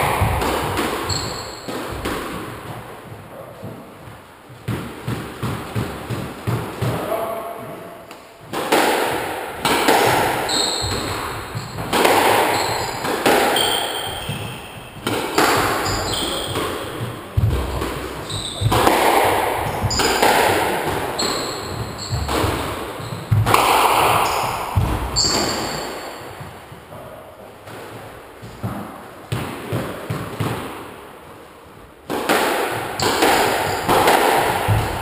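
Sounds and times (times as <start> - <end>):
shoes squeaking on wooden floor: 0.0 - 4.8, 9.6 - 26.9, 33.0 - 35.0
squash ball hits echoing: 0.0 - 27.0, 27.6 - 31.0, 32.0 - 35.0.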